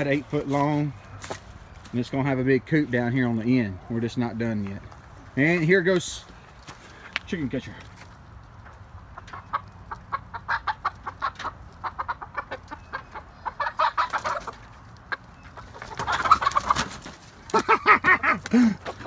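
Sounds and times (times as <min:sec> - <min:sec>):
chickens clucking and squawking: 0:07.8 - 0:19.0.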